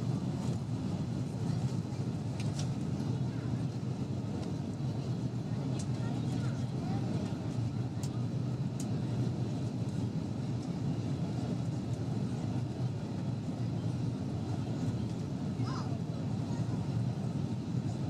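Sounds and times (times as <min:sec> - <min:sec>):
aircraft cabin engine rumble: 0:00.0 - 0:18.0.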